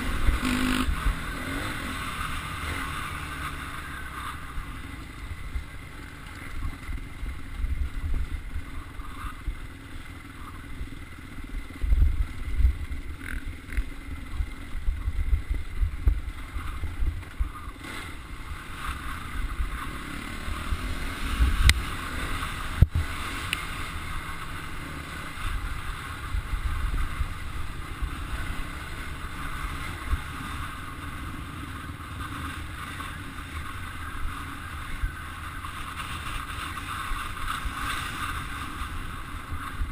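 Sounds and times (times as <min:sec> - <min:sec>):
off-road motorcycle running: 0:00.0 - 0:39.9.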